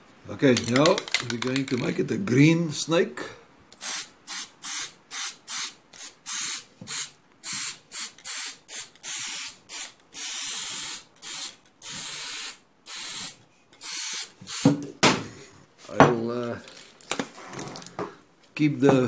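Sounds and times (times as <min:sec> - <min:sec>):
spray paint can hissing: 0:03.8 - 0:14.7.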